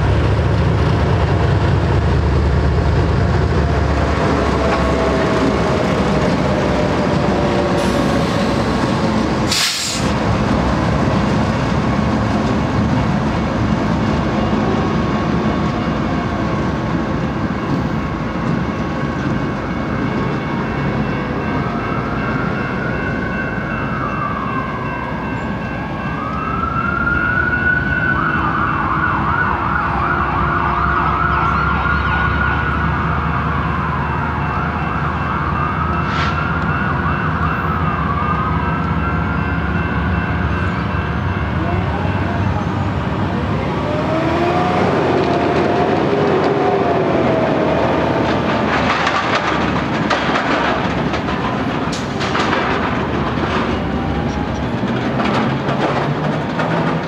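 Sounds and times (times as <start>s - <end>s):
freight train rumble: 0.0s - 31.8s, 32.5s - 57.0s
emergency siren wailing: 3.5s - 9.6s, 10.4s - 50.1s, 52.8s - 55.0s
crossing warning bell ringing: 17.4s - 29.0s, 33.7s - 54.8s
heavy truck rattling: 48.0s - 57.0s.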